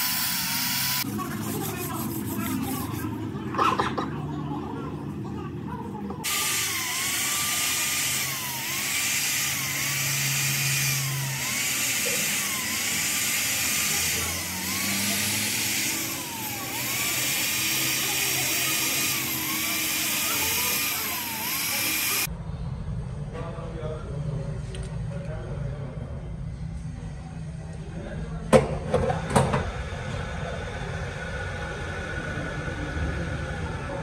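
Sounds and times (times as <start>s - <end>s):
valve-seat grinder whining: 0.0s - 1.2s, 6.2s - 22.3s.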